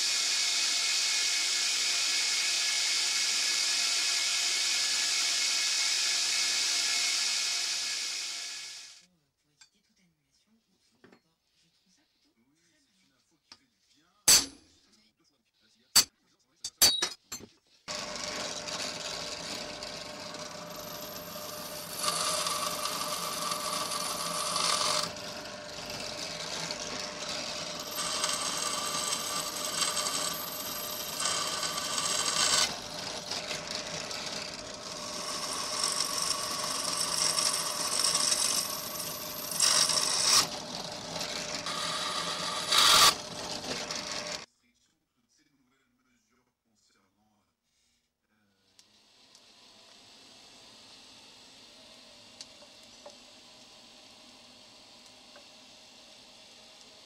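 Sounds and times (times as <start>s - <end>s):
drill press drilling steel: 0.0s - 9.0s, 17.9s - 44.5s, 48.8s - 57.0s.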